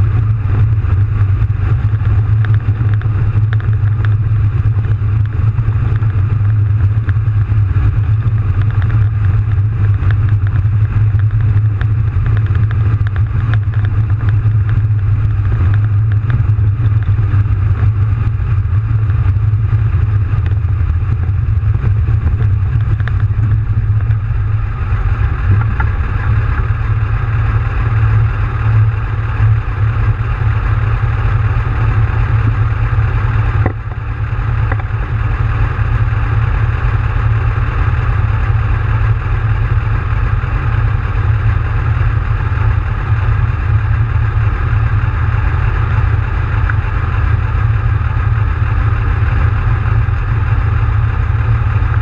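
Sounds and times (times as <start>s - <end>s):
diesel engine running: 0.0s - 52.0s
tracks rattling: 19.9s - 29.6s.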